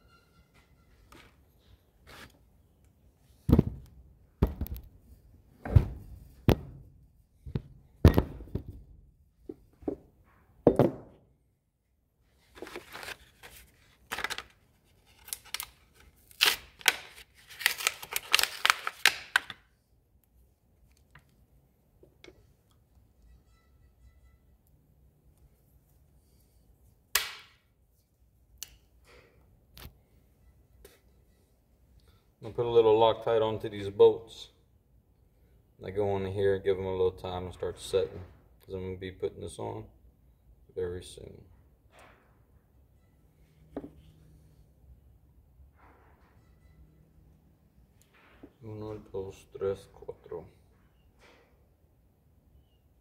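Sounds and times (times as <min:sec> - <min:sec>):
rustling and scraping: 0:00.0 - 0:02.5, 0:12.3 - 0:16.1
sharp knocks of hard objects: 0:05.7 - 0:06.8, 0:07.4 - 0:08.8, 0:09.5 - 0:11.2.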